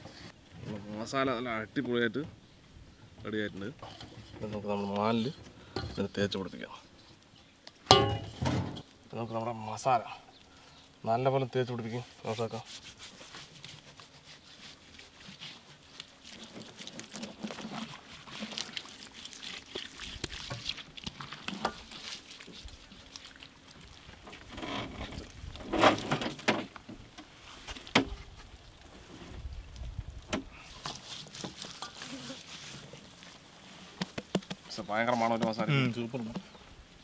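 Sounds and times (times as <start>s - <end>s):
hands rubbing wet paste: 11.7s - 24.2s, 30.6s - 35.5s.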